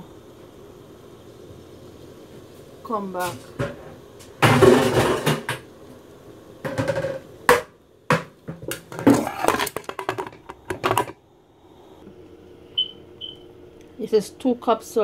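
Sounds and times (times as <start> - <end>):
metal lid clanking and scraping: 8.6 - 11.2.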